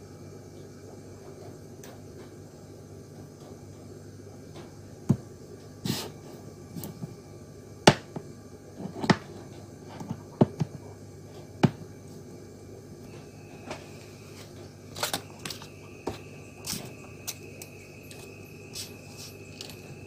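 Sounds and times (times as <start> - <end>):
low background hum: 0.0 - 20.0
capacitors knocking on a mat: 8.9 - 9.4, 10.0 - 10.8, 11.6 - 11.9.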